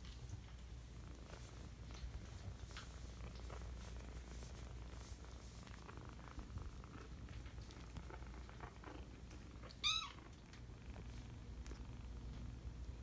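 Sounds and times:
rustling on blanket: 0.0s - 9.7s
kittens purring: 0.0s - 13.0s
kitten mewing: 9.8s - 10.2s.

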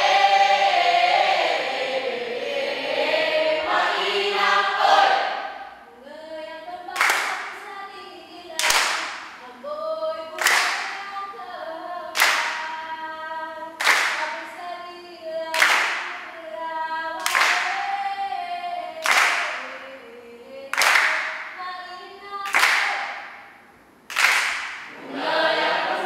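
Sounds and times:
group singing without instruments: 0.0s - 6.0s, 24.8s - 26.0s
sharp hand clap: 7.0s - 7.6s, 8.6s - 9.4s, 10.4s - 11.1s, 12.1s - 12.8s, 13.8s - 14.5s, 15.5s - 16.3s, 17.2s - 17.9s, 19.0s - 19.8s, 20.7s - 21.6s, 22.4s - 23.5s, 24.1s - 25.0s.

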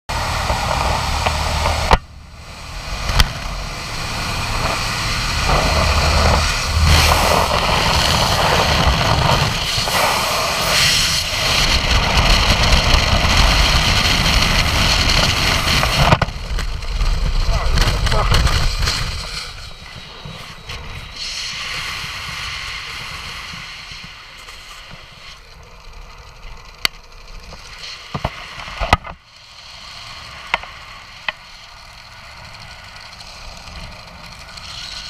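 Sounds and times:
wind rushing over microphone: 0.1s - 24.4s
aircraft engine roaring: 0.1s - 35.0s.

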